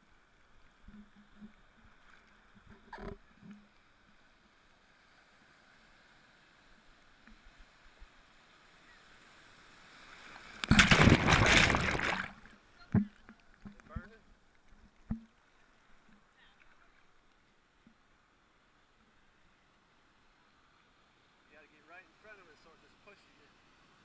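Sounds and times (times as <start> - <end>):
faint water sounds: 0.0 - 24.0
wave crashing and splashing: 10.4 - 12.5.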